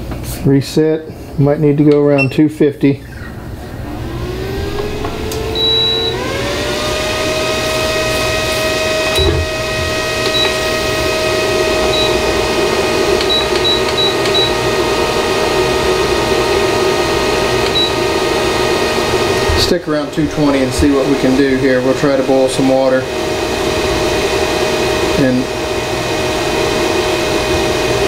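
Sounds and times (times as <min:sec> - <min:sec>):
cooling fan whine: 0:00.0 - 0:28.0
short high control panel beeps: 0:02.2 - 0:02.4, 0:05.6 - 0:06.2, 0:13.2 - 0:14.6.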